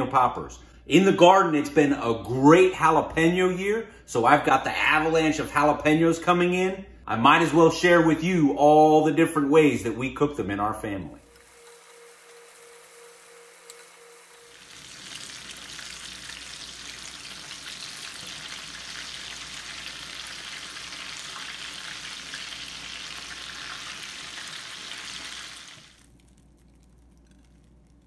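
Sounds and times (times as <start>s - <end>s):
food deep-frying in hot oil: 11.2s - 28.0s.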